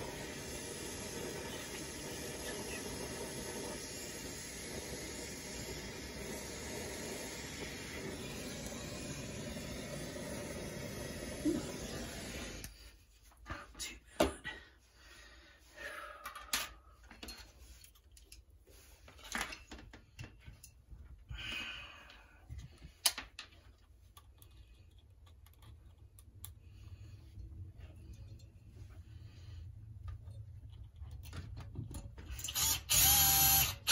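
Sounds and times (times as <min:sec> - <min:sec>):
tools clicking and knocking: 0:22.6 - 0:26.6.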